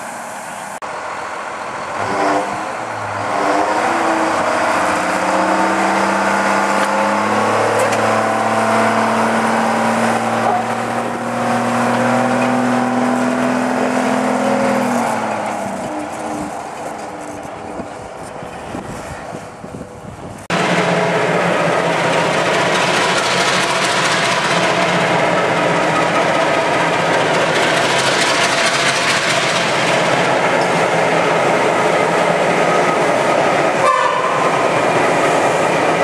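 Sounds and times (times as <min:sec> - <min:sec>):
locomotive diesel engine revving: 0:01.7 - 0:17.5.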